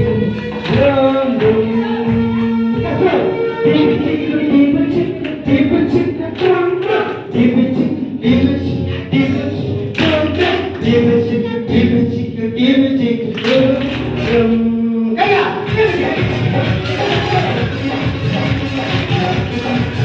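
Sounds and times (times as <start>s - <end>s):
group singing children's song: 3.8s - 8.5s, 9.1s - 11.8s
hand claps: 13.3s - 14.5s.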